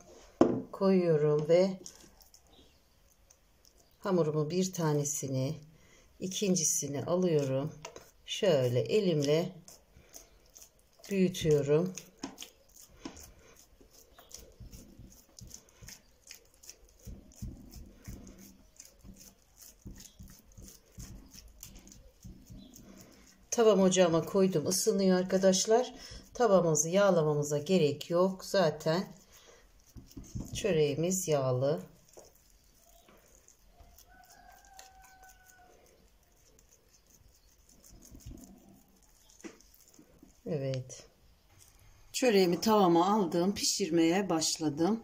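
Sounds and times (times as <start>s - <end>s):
fingers patting dough: 1.2s - 41.0s
small sticky clicks: 1.8s - 4.0s
hand patting soft dough: 14.0s - 22.9s, 29.8s - 34.0s.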